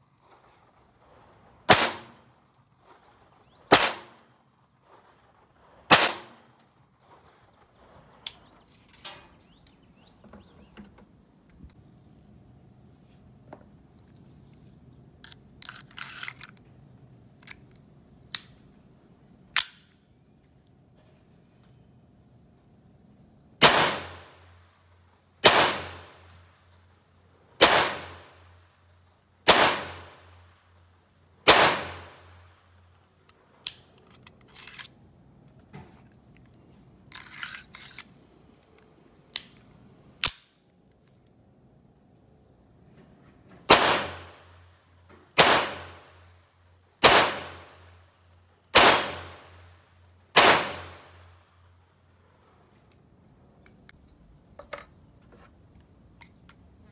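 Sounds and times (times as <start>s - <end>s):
pistol shots with echo: 1.7s - 2.2s, 3.7s - 4.3s, 5.9s - 6.5s, 23.6s - 24.2s, 25.4s - 26.1s, 27.6s - 28.2s, 29.5s - 30.1s, 31.5s - 32.2s, 43.7s - 44.3s, 45.4s - 46.0s, 47.0s - 47.8s, 48.8s - 49.6s, 50.4s - 51.1s
gun handling noise: 13.5s - 18.8s, 33.2s - 41.3s, 53.6s - 56.8s
sharp metallic clicks: 38.8s - 40.7s.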